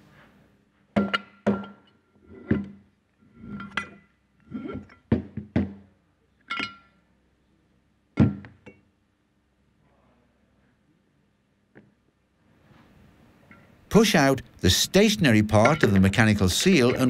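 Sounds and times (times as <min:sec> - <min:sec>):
metal parts clanking: 0:15.3 - 0:17.0.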